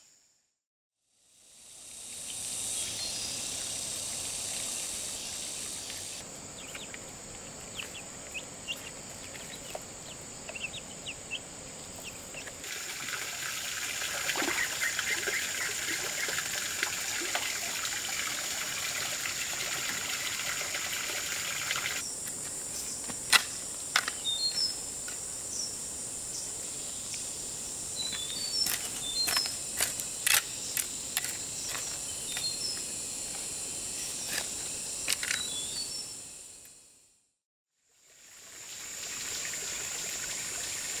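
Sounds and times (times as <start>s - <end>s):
insects droning: 1.1s - 37.2s, 37.9s - 41.0s
loud hiss: 1.2s - 6.2s.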